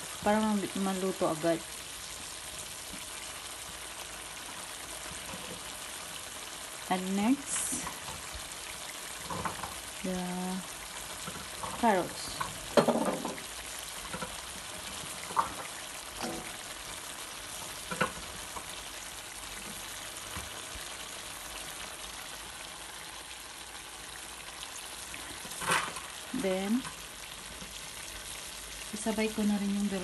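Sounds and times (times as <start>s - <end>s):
food sizzling in a pan: 0.0s - 30.0s.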